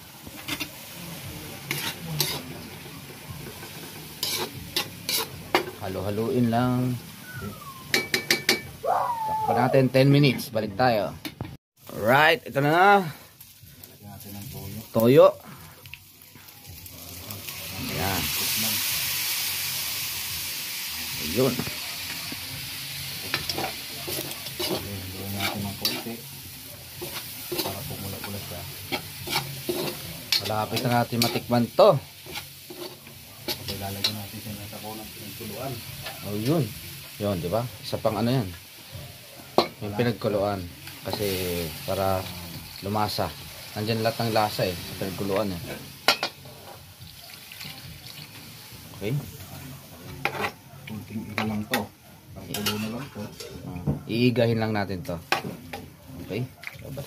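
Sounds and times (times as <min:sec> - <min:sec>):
food sizzling in a wok: 0:00.0 - 0:10.4, 0:11.8 - 0:57.0
metal spatula scraping a pan: 0:00.3 - 0:01.0, 0:01.6 - 0:05.8, 0:23.2 - 0:34.2, 0:46.0 - 0:46.9, 0:50.1 - 0:50.6, 0:52.5 - 0:53.6.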